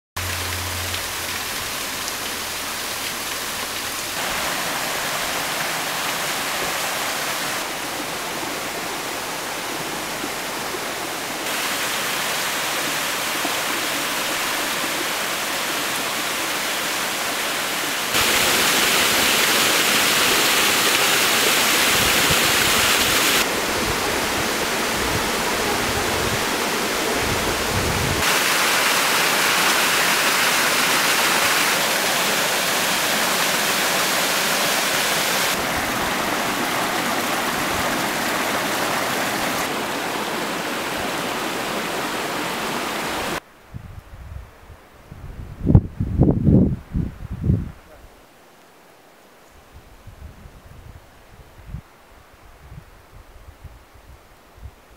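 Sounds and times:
stream water rushing and splashing: 0.2 - 43.4
wind gusts on microphone: 21.7 - 28.4, 35.4 - 48.1, 49.6 - 54.9.

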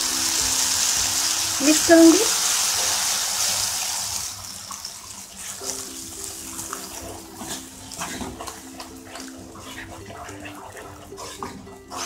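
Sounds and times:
soft background music: 0.0 - 12.0
wet squelching stirring: 4.9 - 12.0.

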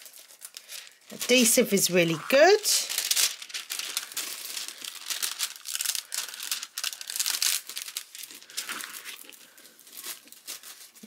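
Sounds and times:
plastic film crinkling and rustling: 0.0 - 11.0.

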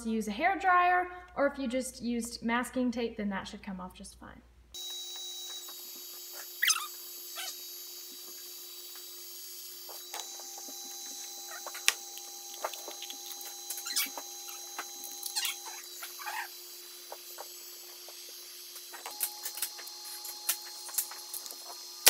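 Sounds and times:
heat gun blowing: 4.8 - 22.0.

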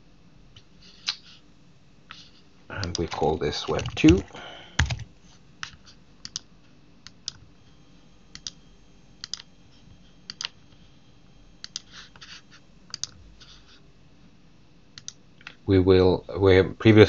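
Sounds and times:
computer mouse clicks: 6.2 - 7.4, 8.4 - 8.6, 9.2 - 9.5, 10.3 - 10.5, 11.6 - 11.9, 12.9 - 13.2, 15.0 - 15.2.

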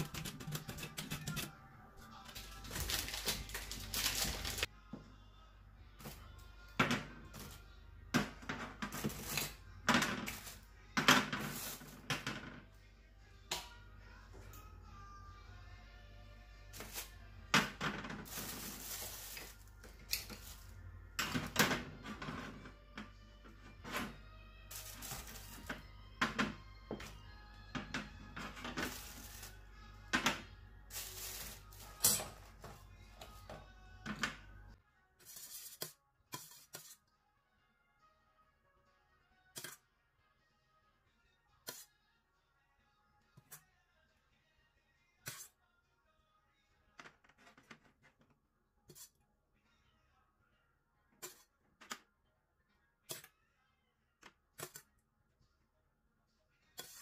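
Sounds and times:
faint background music: 0.0 - 57.0
ice rattling in plastic bag: 2.4 - 4.7, 18.3 - 19.5.

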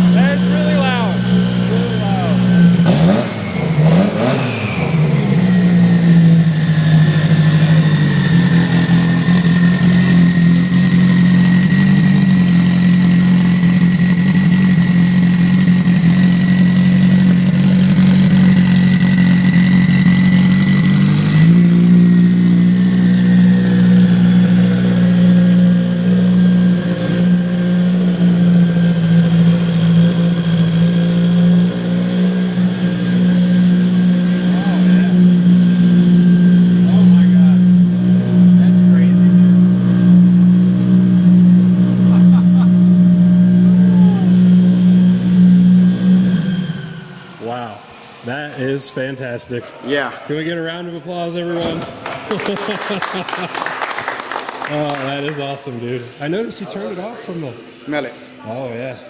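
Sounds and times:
car engine revving and idling: 0.0 - 49.4, 50.5 - 59.0
thin steady whine: 32.5 - 49.7.

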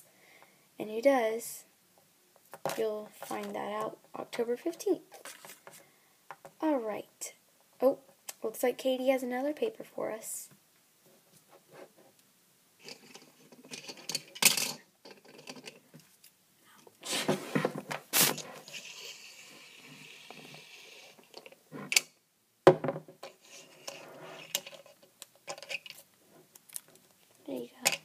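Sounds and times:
sharp knocks on hard floor: 22.7 - 23.2.

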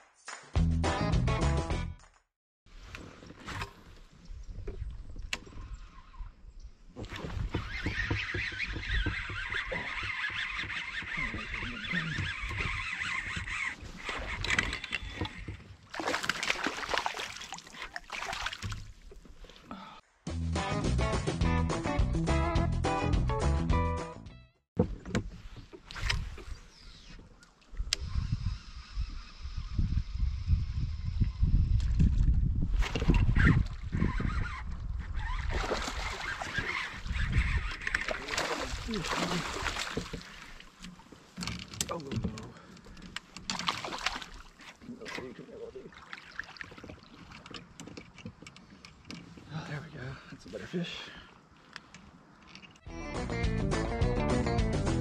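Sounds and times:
fish splashing in water: 15.9 - 19.1, 35.5 - 37.1, 38.0 - 40.8, 43.5 - 44.7.

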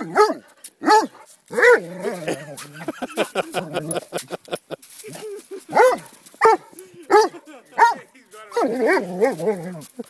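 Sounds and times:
dog barking: 0.0 - 1.8, 5.7 - 9.5
dog grumbling and whining: 1.5 - 2.6, 8.6 - 10.0.

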